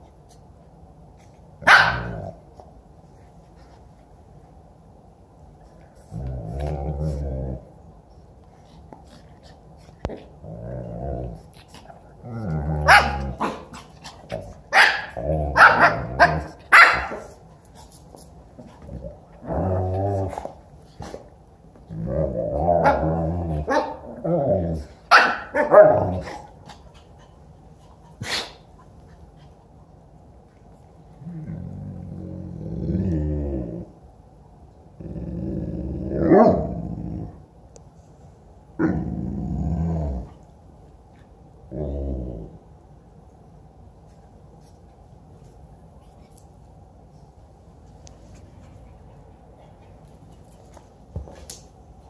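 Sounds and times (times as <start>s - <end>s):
dogs growling: 6.1s - 7.8s, 10.0s - 16.6s, 18.8s - 20.6s, 31.2s - 34.0s, 35.0s - 37.4s, 38.8s - 40.4s, 41.7s - 42.7s.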